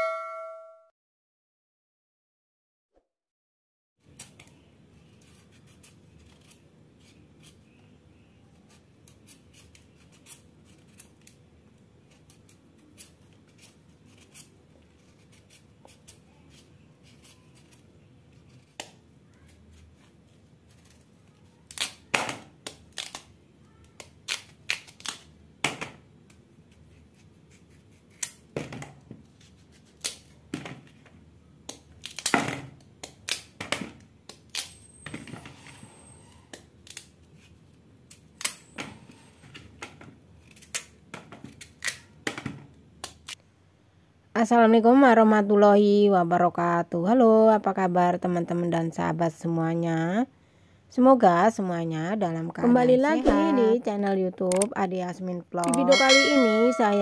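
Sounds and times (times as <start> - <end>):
knife scraping potato: 4.9 - 7.8, 8.5 - 11.4, 12.0 - 18.9, 26.7 - 28.4, 29.3 - 30.3.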